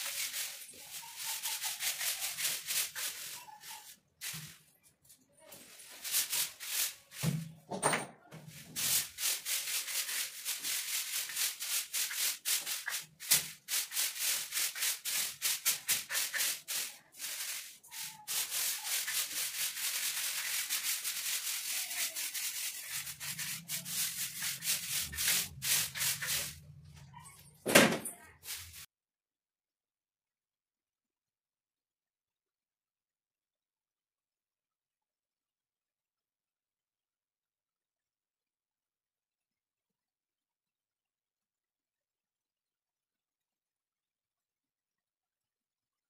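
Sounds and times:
broom sweeping shelf: 0.0 - 28.9.

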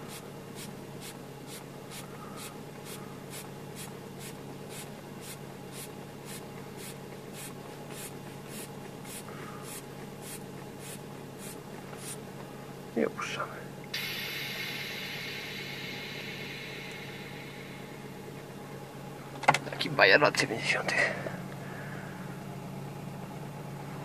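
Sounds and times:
seat hand pump strokes: 0.0 - 12.2
car engine idling: 11.4 - 19.4.

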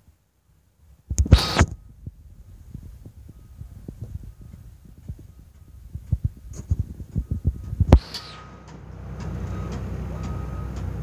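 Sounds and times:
low engine rumble: 0.6 - 11.0
wind buffeting microphone: 1.0 - 8.7
faint short beeps: 3.3 - 5.8, 9.4 - 11.0.

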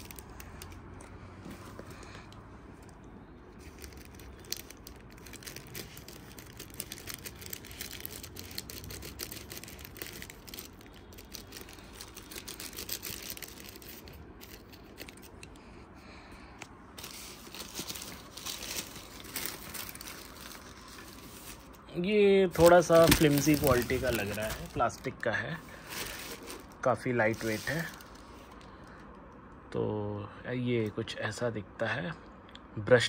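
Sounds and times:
packaging crinkling and tearing: 0.0 - 0.9, 2.9 - 15.5, 17.0 - 21.8, 22.5 - 25.1, 25.7 - 28.6.

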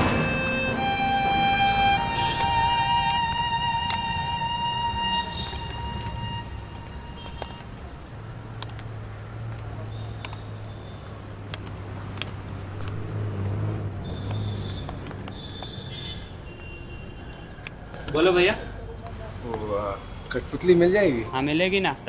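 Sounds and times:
violin music: 0.0 - 7.6
street traffic: 0.0 - 22.0.

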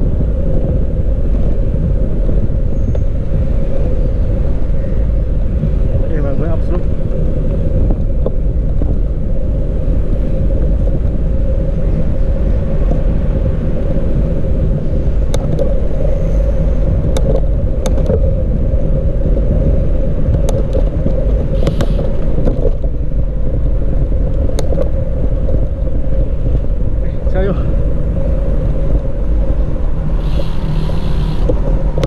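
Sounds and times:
bicycle road noise: 0.0 - 32.0
wind on microphone: 0.0 - 32.0.

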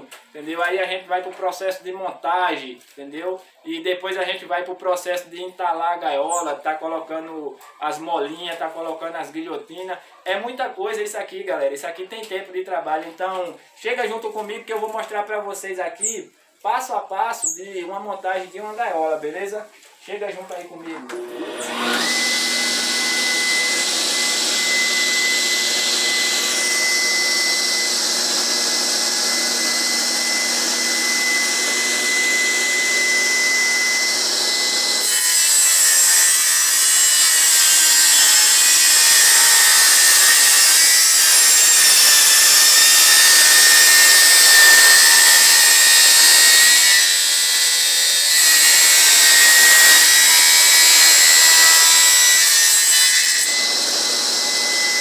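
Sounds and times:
table saw cutting wood: 20.8 - 55.0.

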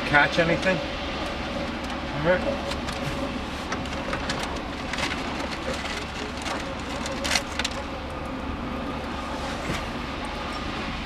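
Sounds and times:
wiring and plastic parts rustling: 2.6 - 8.0.

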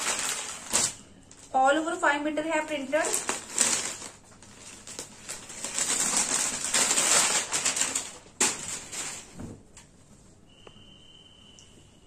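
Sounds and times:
fabric rustling: 2.6 - 10.4.

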